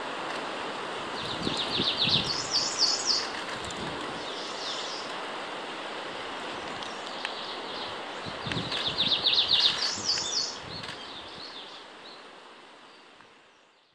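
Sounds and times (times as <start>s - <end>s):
steady outdoor hiss: 0.0s - 13.9s
warbler singing high notes: 1.2s - 3.3s, 8.8s - 10.6s.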